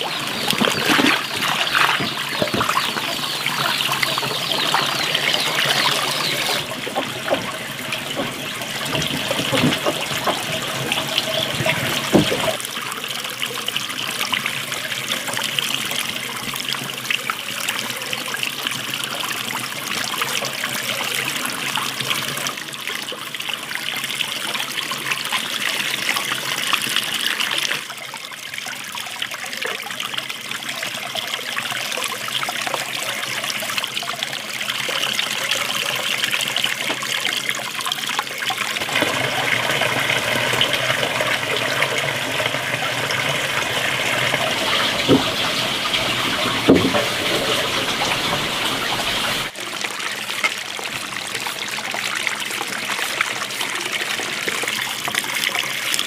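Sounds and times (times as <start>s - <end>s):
water splashing into metal basin: 0.0s - 12.7s, 38.2s - 56.0s.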